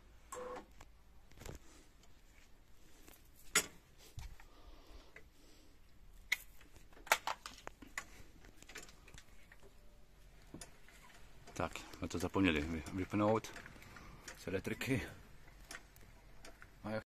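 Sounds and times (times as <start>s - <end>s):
metal crank rod clicking and knocking: 10.5s - 16.8s.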